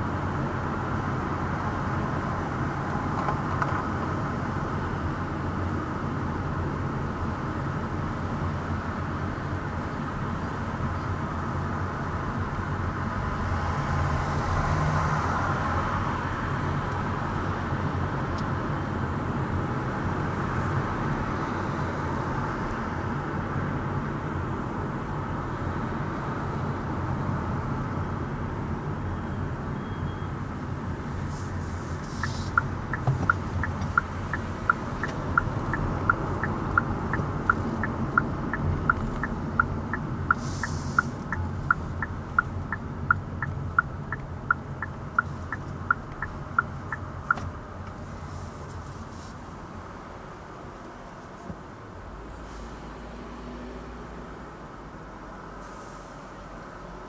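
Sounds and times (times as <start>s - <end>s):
car road and engine noise: 0.0s - 57.0s
turn signal ticking: 31.0s - 48.0s.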